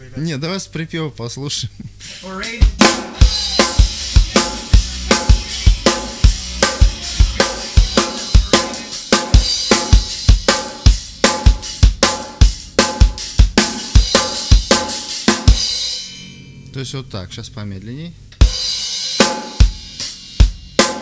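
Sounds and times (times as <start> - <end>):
drum kit rock beat: 1.9 - 16.4, 18.3 - 21.0
ringing cymbals: 15.6 - 16.7.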